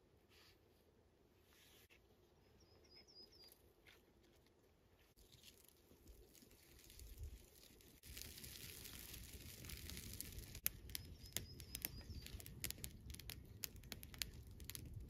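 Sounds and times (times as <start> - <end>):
campfire clicks: 5.3 - 15.0.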